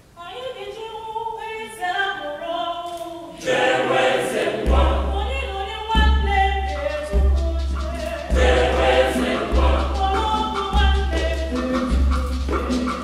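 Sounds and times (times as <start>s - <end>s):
mixed choir singing: 3.4s - 5.5s, 8.3s - 11.9s.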